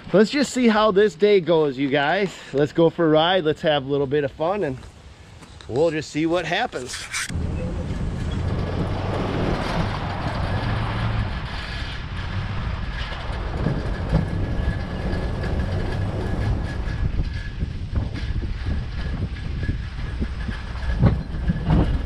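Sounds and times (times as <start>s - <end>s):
truck body knocking and rattling: 7.3s - 22.0s
truck engine low rumble: 7.3s - 22.0s.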